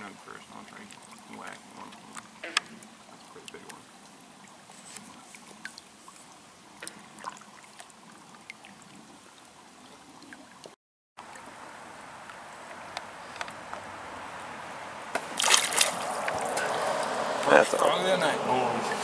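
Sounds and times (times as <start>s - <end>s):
rushing water: 0.0s - 19.0s
water splashing: 0.0s - 19.0s
water trickling: 0.0s - 19.0s
kayak clicks: 12.2s - 13.8s.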